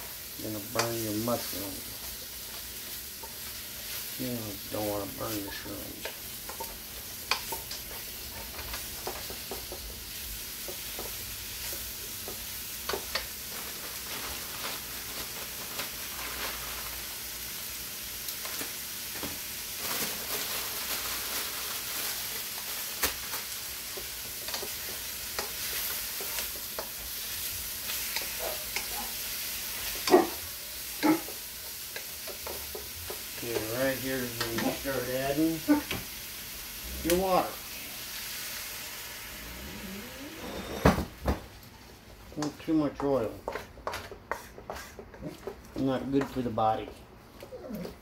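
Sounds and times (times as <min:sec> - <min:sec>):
vegetables sizzling in a wok: 0:00.0 - 0:45.7
wooden spatula scraping a pan: 0:42.8 - 0:47.0.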